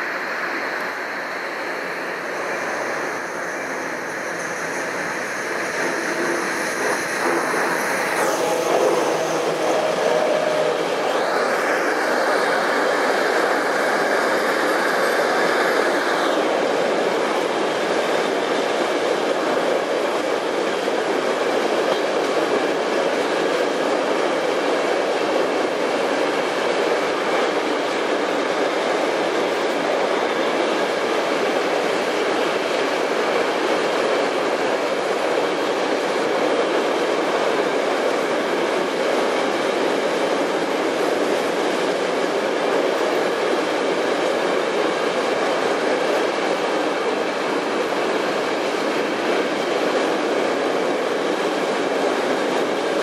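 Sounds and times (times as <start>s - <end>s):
high whine: 0.0s - 22.9s
train wheels rolling on rail: 0.0s - 53.0s.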